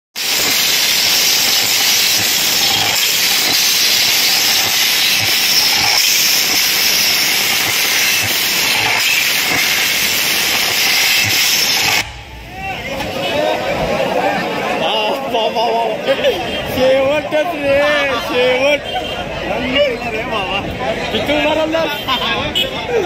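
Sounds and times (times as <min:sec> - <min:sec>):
loud steady hiss: 0:00.2 - 0:13.4.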